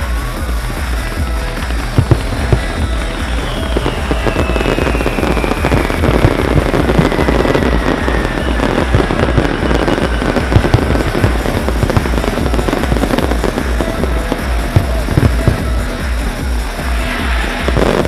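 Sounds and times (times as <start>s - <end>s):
fireworks bangs and crackles: 0.0s - 18.0s
music: 0.0s - 18.0s.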